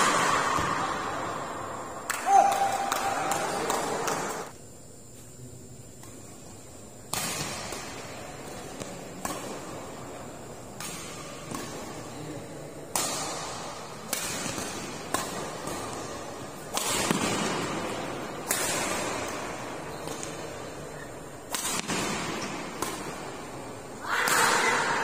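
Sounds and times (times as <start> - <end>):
racket smacking shuttlecock: 2.0 - 4.5, 7.1 - 9.8, 10.7 - 12.0, 12.9 - 25.0.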